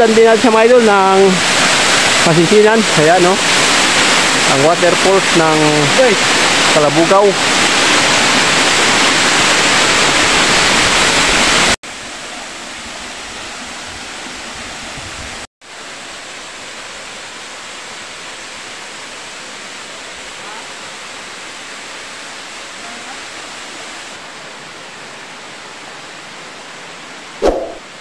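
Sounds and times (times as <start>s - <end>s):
waterfall rushing: 0.0s - 14.9s.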